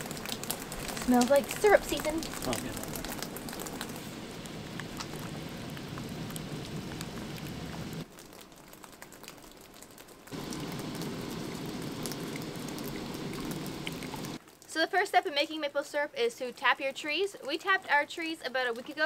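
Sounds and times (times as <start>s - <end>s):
sap boiling with small pops: 0.0s - 14.7s.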